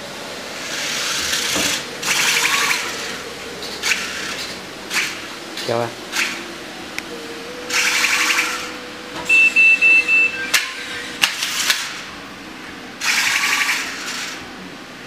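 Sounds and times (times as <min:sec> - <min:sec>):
electric motors whirring: 0:00.0 - 0:14.6
short high beeps: 0:09.3 - 0:11.0.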